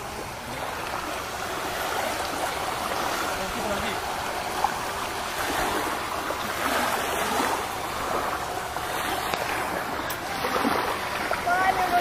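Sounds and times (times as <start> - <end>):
small waves lapping on shore: 0.0 - 12.0.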